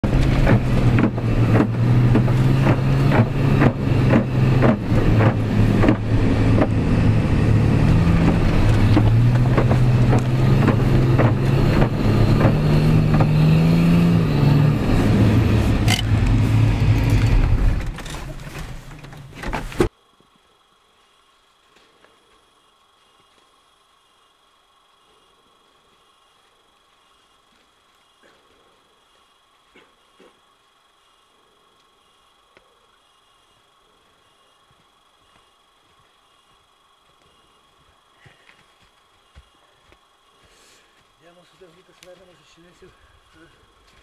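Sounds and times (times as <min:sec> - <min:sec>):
car engine under load: 0:00.0 - 0:20.0
knocks and rattles: 0:00.1 - 0:06.9, 0:07.9 - 0:13.5, 0:15.8 - 0:19.9.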